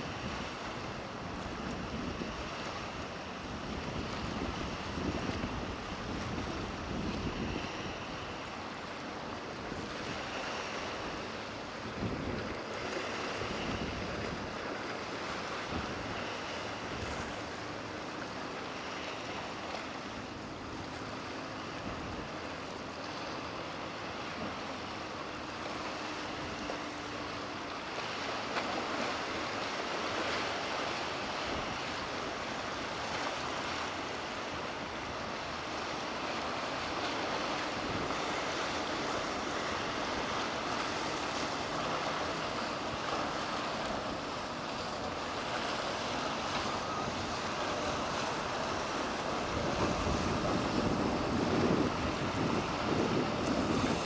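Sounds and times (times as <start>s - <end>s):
wind buffeting microphone: 0.0s - 17.6s, 36.4s - 54.0s
distant boat engine hum: 0.0s - 54.0s
waves and surf: 0.0s - 54.0s.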